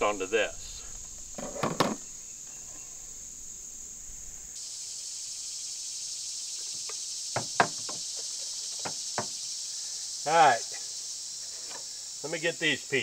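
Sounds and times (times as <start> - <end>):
high-pitched insect chorus: 0.0 - 13.0
sharp knocks: 7.3 - 8.0, 8.8 - 9.4.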